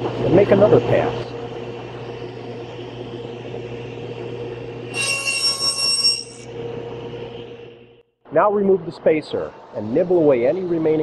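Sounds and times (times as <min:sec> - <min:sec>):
saw whining cutting plywood: 0:04.9 - 0:06.5
table saw blade humming: 0:04.9 - 0:07.7.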